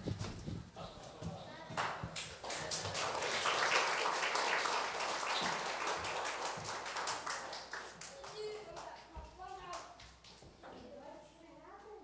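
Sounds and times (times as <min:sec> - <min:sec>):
audience applauding: 0:02.3 - 0:08.9.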